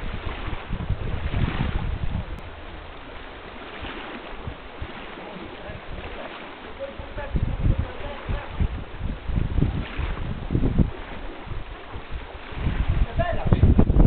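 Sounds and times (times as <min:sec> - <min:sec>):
rushing river water: 0:00.0 - 0:14.0
wind rumbling on microphone: 0:00.0 - 0:14.0
fish splashing: 0:02.6 - 0:13.1.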